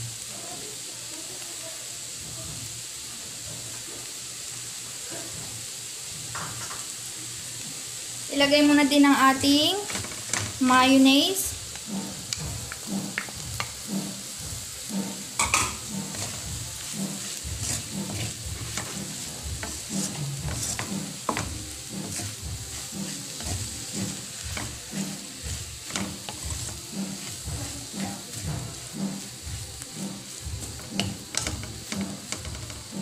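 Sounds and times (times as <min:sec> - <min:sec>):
light sizzle: 0:00.0 - 0:33.0
wooden spatula stirring in pan: 0:09.1 - 0:33.0
spatula clicking against pan: 0:11.8 - 0:13.9, 0:30.6 - 0:32.9.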